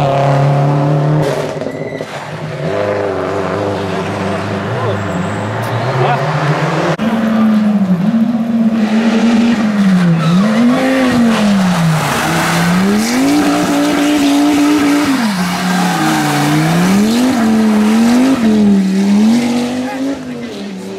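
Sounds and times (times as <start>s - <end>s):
rally car engine revving: 0.0s - 20.9s
tyres squealing on wet tarmac: 10.1s - 19.0s.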